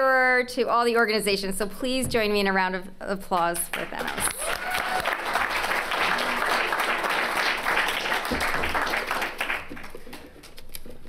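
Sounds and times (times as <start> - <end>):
audience applauding: 3.7 - 10.3.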